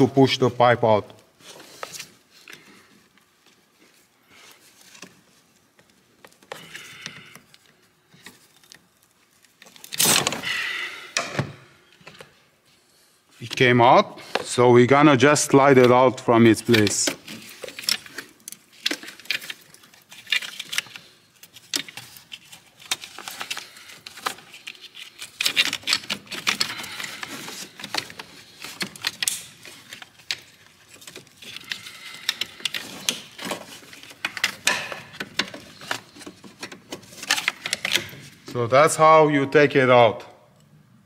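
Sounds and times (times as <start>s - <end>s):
plastic pipe clicking and rattling: 22.8s - 38.3s.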